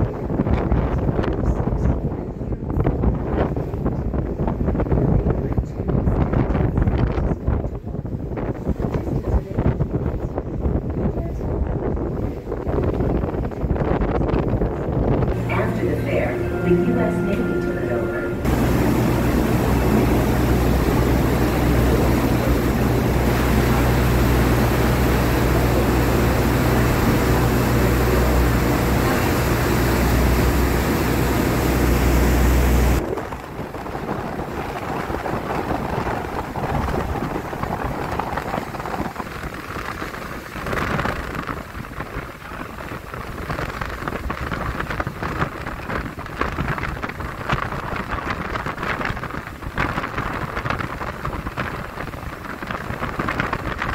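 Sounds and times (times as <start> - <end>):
gusty wind: 0.0 - 53.9
churning wake rushing: 12.1 - 53.9
boat engine drone: 15.2 - 53.9
water splashing: 18.5 - 42.3.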